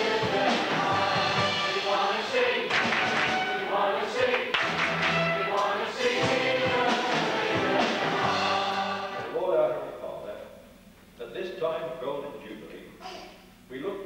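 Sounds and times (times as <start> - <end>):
live band playing: 0.0 - 3.8, 4.6 - 9.2
brass playing: 0.0 - 9.4
congregation and choir singing: 0.0 - 9.5
drums: 0.0 - 9.8.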